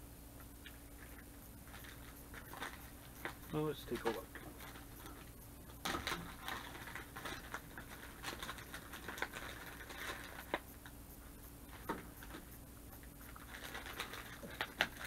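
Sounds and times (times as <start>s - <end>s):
small clicks of handled packages: 0.4s - 11.0s, 11.7s - 15.0s
plastic bag rustling: 1.1s - 10.7s, 13.2s - 15.0s.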